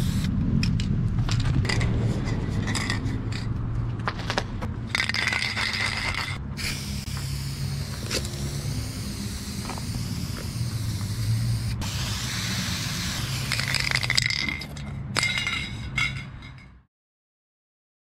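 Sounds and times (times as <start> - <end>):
spray paint can hissing: 0.0 - 0.3, 4.9 - 14.8.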